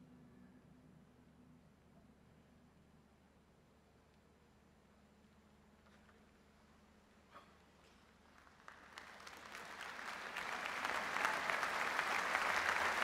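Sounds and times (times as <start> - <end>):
crowd applause: 8.3 - 13.0.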